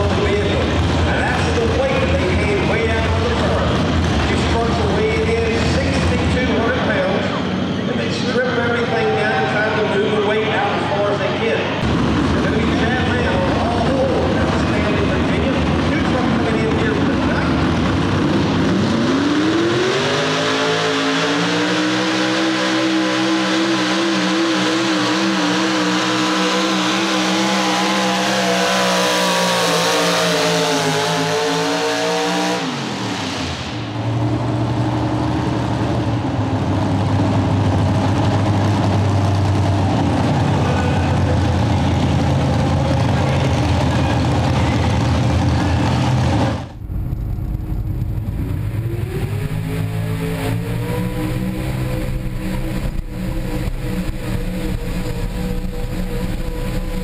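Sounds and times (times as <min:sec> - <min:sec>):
truck engine idling: 0:00.0 - 0:19.3, 0:33.0 - 0:57.0
truck engine revving: 0:00.0 - 0:57.0.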